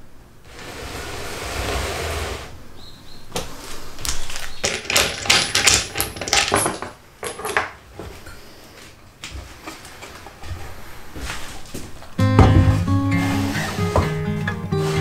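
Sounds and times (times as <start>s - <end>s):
wooden knocks and clatter: 4.4s - 8.1s, 11.8s - 13.0s.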